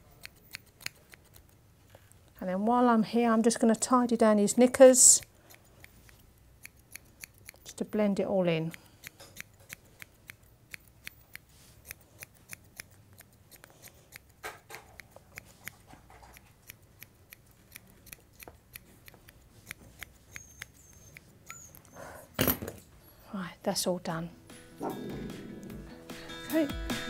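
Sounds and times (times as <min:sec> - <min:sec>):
scissors snipping hair: 0:00.0 - 0:02.6, 0:04.5 - 0:22.0.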